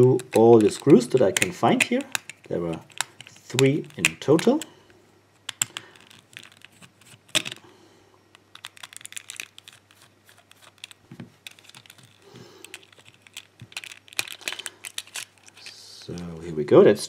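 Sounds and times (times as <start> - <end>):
handling rustles: 8.4 - 16.7.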